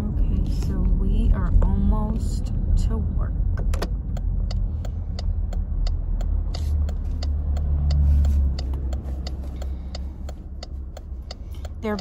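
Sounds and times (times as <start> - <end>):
low road and engine rumble: 0.0 - 12.0
quick even ticking: 4.0 - 12.0.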